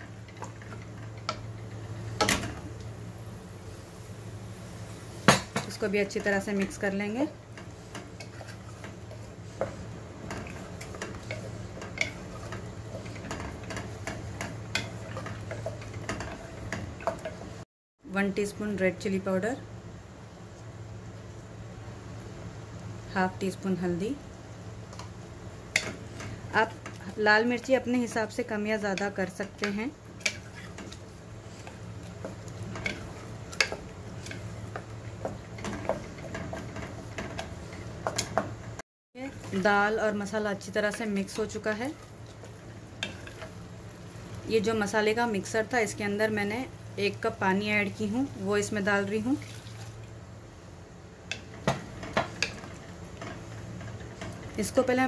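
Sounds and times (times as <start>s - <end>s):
spatula scraping a pot: 7.8s - 16.6s, 30.2s - 34.4s.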